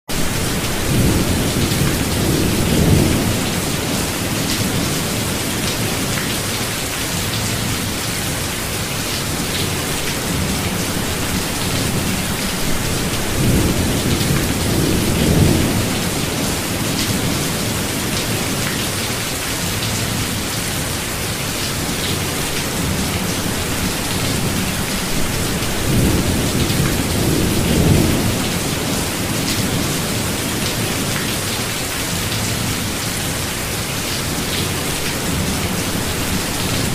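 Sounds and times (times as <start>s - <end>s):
steady rain hissing: 0.1s - 36.9s
thunder rumbling low: 0.2s - 5.2s, 10.3s - 17.9s, 22.7s - 30.6s.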